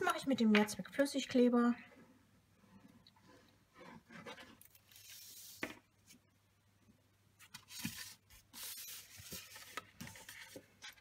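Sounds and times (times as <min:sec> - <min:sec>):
paper rustling and sliding: 0:04.1 - 0:06.2, 0:07.4 - 0:11.0.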